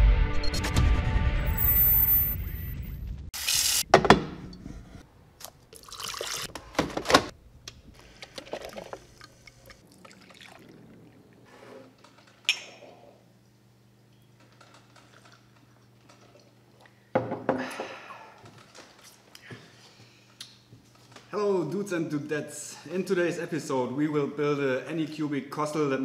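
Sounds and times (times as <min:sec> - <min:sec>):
liquid pouring and splashing: 0:05.7 - 0:06.5, 0:08.3 - 0:11.4.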